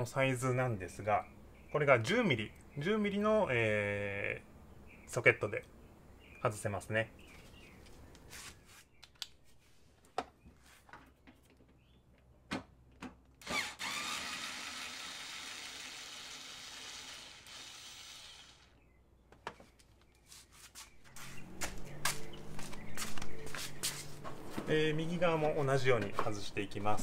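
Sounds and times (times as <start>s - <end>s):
electric screwdriver spinning: 13.4s - 18.7s.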